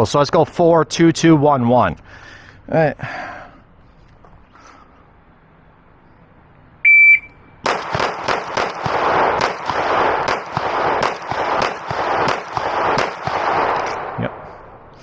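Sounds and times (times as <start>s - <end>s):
shot timer beep: 6.8s - 7.4s
pistol shots with echo: 7.6s - 14.8s.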